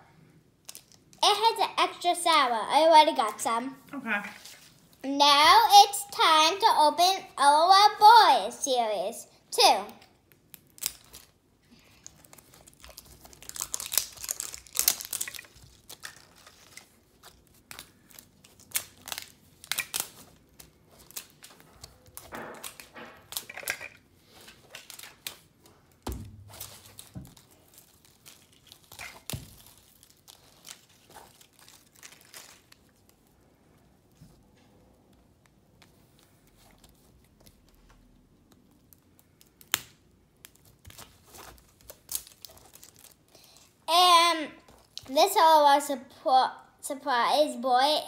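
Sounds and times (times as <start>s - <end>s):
plastic packaging crinkling: 10.2s - 33.6s, 36.1s - 43.8s.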